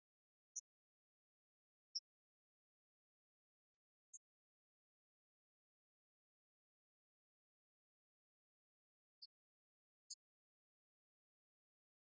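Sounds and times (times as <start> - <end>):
faint high-pitched tick: 0.0 - 9.4, 10.0 - 12.0.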